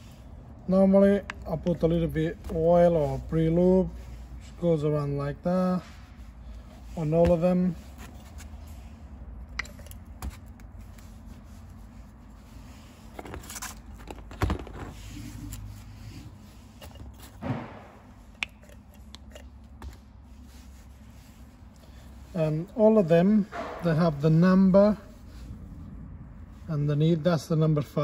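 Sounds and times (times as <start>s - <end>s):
low workshop hum: 0.0s - 28.0s
metal parts clicking and scraping: 9.5s - 10.6s, 18.3s - 19.8s.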